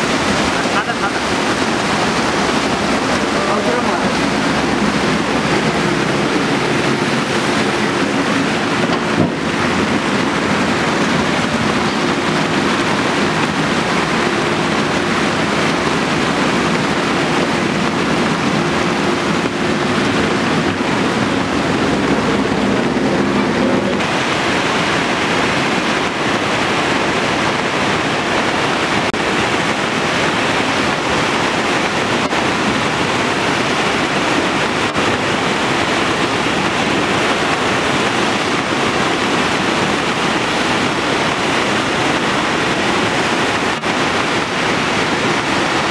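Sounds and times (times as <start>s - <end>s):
floodwater rushing: 0.0s - 45.9s
river in flood rushing: 0.0s - 45.9s
backhoe diesel engine running: 1.2s - 13.4s.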